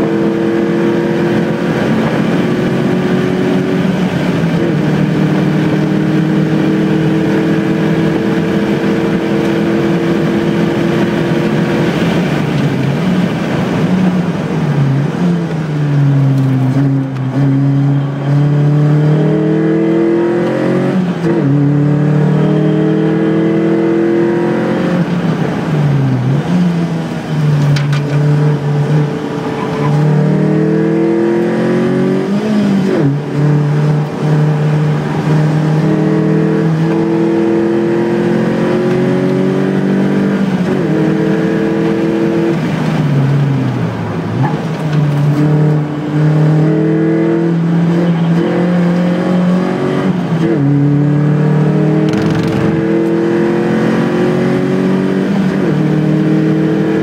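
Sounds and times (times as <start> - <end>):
vehicle engine revving: 0.0 - 57.0.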